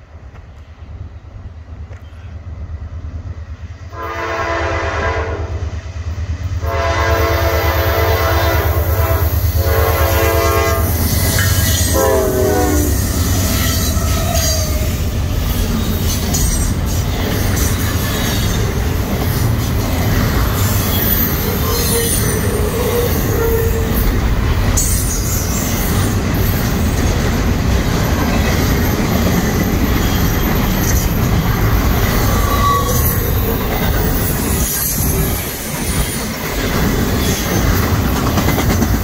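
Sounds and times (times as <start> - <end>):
locomotive horn blasts: 3.9 - 5.7, 6.6 - 13.1
rolling clatter of freight cars: 7.9 - 39.0.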